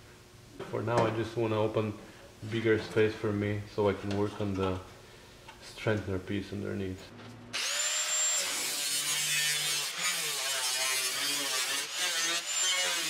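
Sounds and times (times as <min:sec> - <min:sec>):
angle grinder cutting metal: 0:07.6 - 0:13.0.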